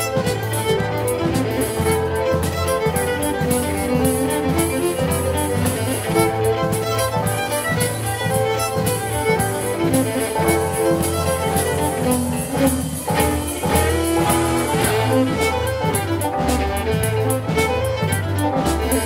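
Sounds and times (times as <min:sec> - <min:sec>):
fiddle playing a tune: 0:00.0 - 0:19.0
keyboard chords: 0:00.0 - 0:19.0
sustained low notes: 0:09.0 - 0:18.0.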